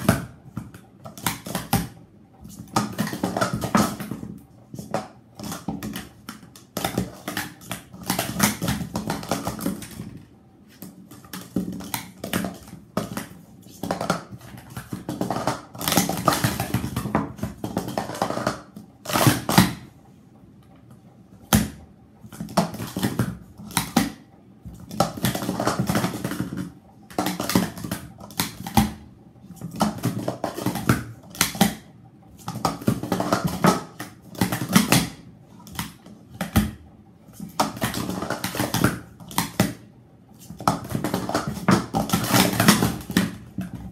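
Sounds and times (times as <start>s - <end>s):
plastic cups clattering: 10.8s - 19.8s, 24.8s - 29.0s, 29.6s - 31.8s, 32.4s - 36.7s, 37.4s - 39.8s, 40.4s - 43.9s.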